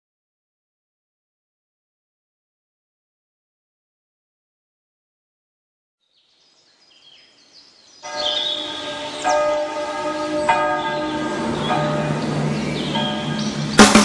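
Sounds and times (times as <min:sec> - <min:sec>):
church bell tolling: 0:08.1 - 0:13.8.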